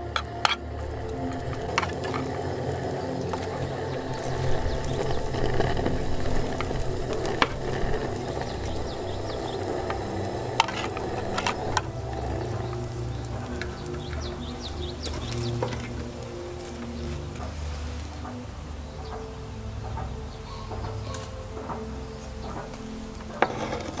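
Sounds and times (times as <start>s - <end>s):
utensils clicking against pan: 0.0s - 16.2s.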